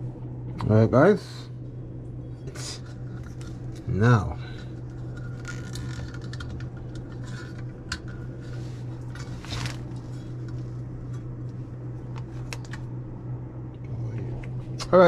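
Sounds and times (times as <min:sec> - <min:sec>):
handling rustle: 0:08.3 - 0:10.8.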